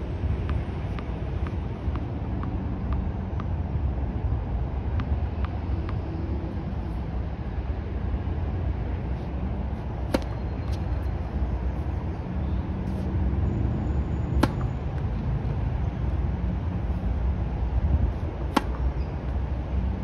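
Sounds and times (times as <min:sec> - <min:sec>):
wind rumble on microphone: 0:00.0 - 0:09.8, 0:15.0 - 0:20.0
tennis balls being hit: 0:09.7 - 0:11.6, 0:14.4 - 0:15.2, 0:18.1 - 0:19.6.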